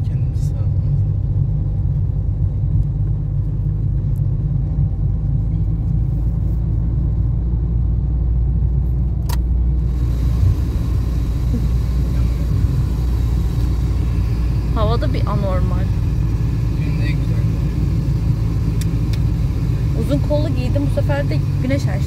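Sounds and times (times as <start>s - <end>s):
car engine and road noise: 0.0s - 22.0s
sharp click: 9.2s - 9.5s.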